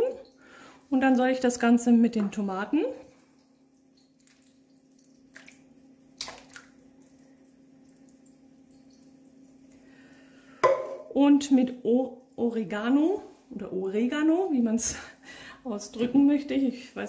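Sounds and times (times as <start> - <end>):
wet plops: 4.0 - 9.1, 10.6 - 11.1.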